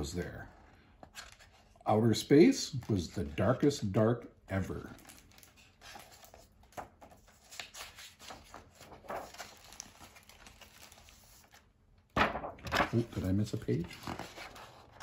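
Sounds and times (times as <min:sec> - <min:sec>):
book pages turning: 0:00.4 - 0:01.8, 0:04.8 - 0:11.7, 0:12.4 - 0:15.0.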